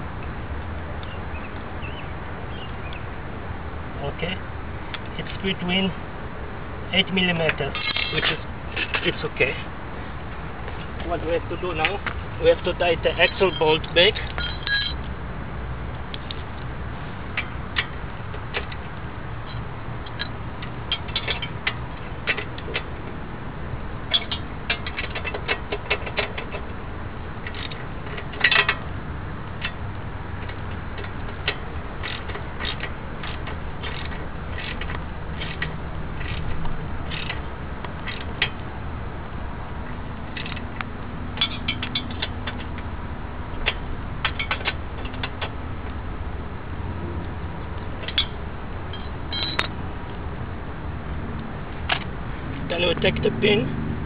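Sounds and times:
metallic clatter of tools: 7.5s - 9.1s, 13.2s - 15.0s, 24.1s - 26.6s, 27.4s - 28.8s, 41.4s - 42.7s.

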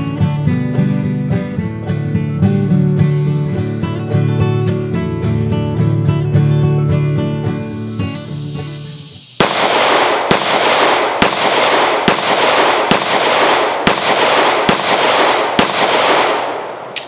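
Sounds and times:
acoustic guitar music: 0.0s - 9.4s
pistol shots echoing: 9.4s - 17.0s.

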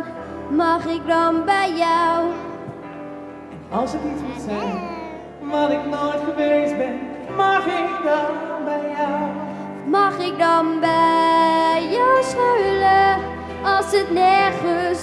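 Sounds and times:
woman singing: 0.0s - 2.7s, 9.8s - 15.0s
instrumental accompaniment: 0.0s - 15.0s.

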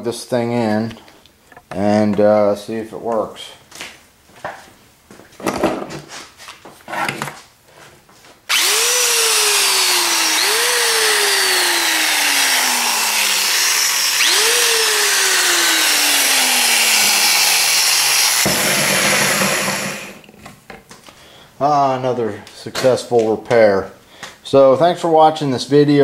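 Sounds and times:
electric drill motor whine: 8.5s - 20.3s.

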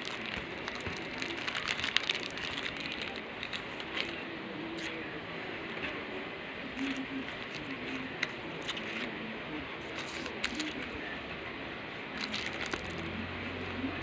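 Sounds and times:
packaging and paper crinkling: 0.0s - 4.2s, 6.8s - 9.1s, 9.8s - 10.9s, 12.2s - 13.1s.

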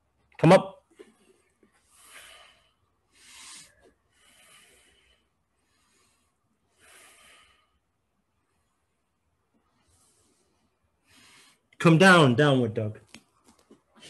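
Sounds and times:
person breathing hard: 1.8s - 8.1s.

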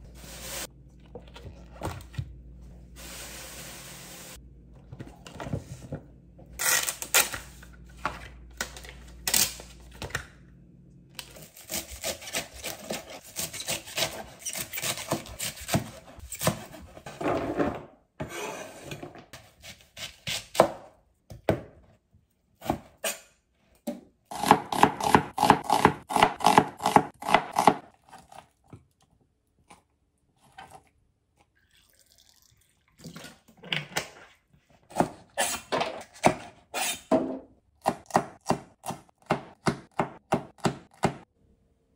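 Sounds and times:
knife slicing onion: 11.4s - 17.0s, 19.4s - 20.9s, 24.3s - 27.8s.

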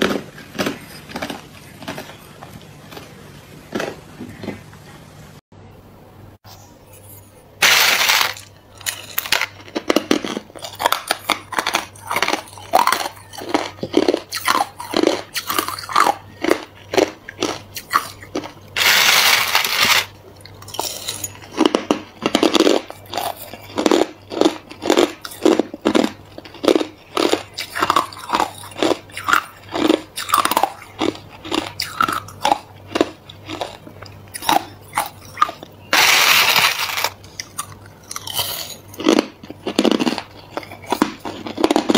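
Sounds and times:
chewing crushed ice: 0.0s - 4.6s, 7.6s - 41.9s
metal spoon scraping ice: 18.8s - 20.1s, 34.4s - 37.2s.

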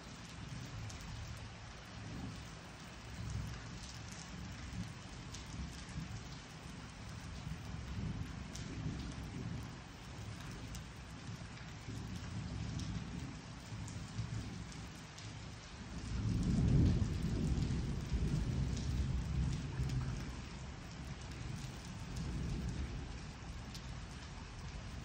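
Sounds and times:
steady rain: 0.0s - 25.0s
thunder rumbling: 15.8s - 24.0s.

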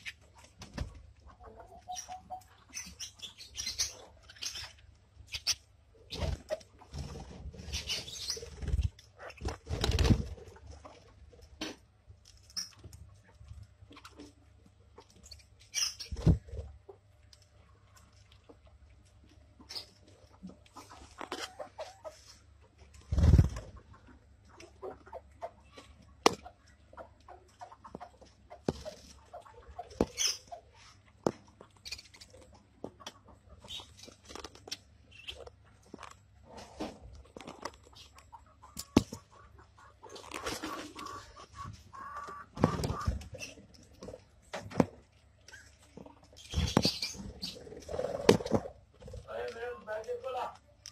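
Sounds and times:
budgerigars squeaking: 1.8s - 6.3s, 46.4s - 47.6s
budgerigars flapping wings: 8.4s - 10.4s
high bird chirp: 46.4s - 47.7s.

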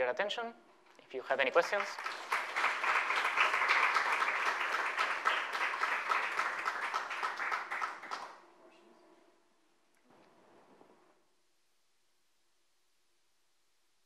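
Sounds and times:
audience applauding: 1.4s - 8.4s.

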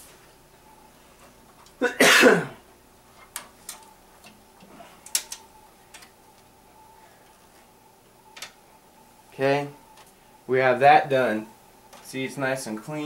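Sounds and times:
light clicks of computer parts: 1.5s - 1.8s, 3.2s - 6.5s, 8.3s - 8.6s, 11.9s - 12.2s
person sneezing: 1.8s - 2.6s.

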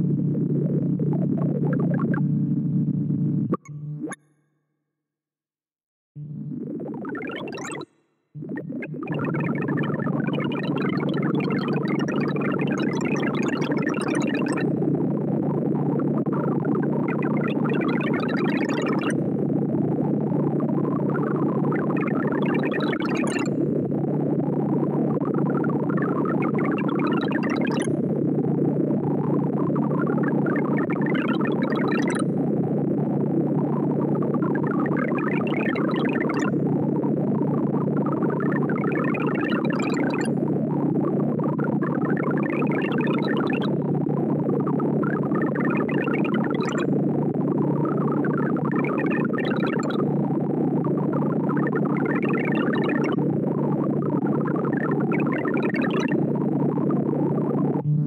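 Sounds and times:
synthesized tone blips: 0.0s - 4.4s, 6.2s - 28.2s, 57.4s - 58.0s
rapid electronic beeps: 57.8s - 58.0s.

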